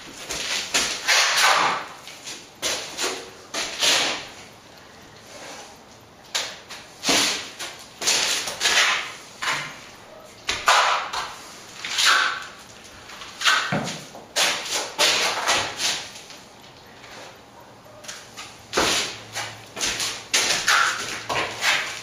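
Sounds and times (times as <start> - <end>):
trowel scraping plaster on wall: 0.2 - 1.9, 2.6 - 4.4, 6.4 - 9.8, 10.6 - 12.6, 13.2 - 16.1, 18.4 - 22.0.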